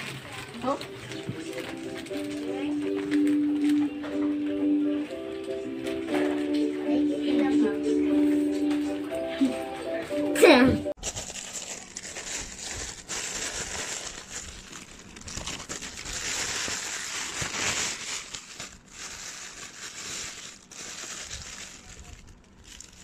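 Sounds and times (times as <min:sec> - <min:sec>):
plastic bag crinkling: 0:00.0 - 0:03.9, 0:11.0 - 0:23.0.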